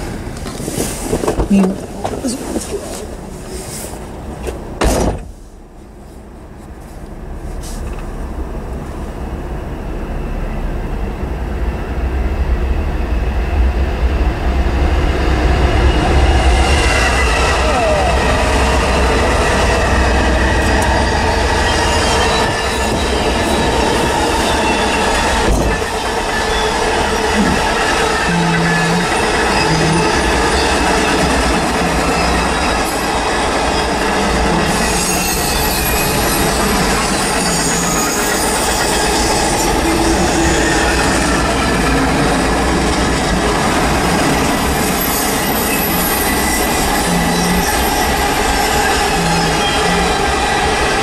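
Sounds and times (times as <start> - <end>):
diesel locomotive rumble: 0.0 - 51.0
rattle of passing freight cars: 0.0 - 51.0
high-pitched wheel squeal: 15.9 - 33.1, 33.7 - 42.4, 44.3 - 50.6.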